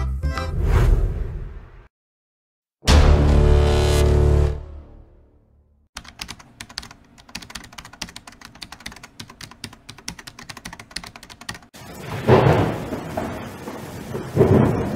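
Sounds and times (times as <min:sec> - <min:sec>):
keyboard typing clicks: 0:06.0 - 0:11.7.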